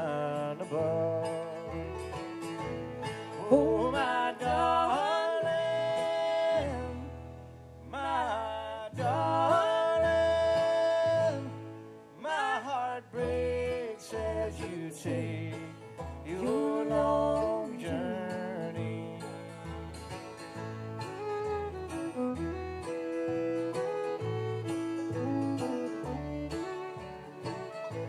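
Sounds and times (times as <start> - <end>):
mandolin: 0.0 - 28.0
strummed acoustic guitar: 0.0 - 28.0
person singing long notes: 16.3 - 19.3.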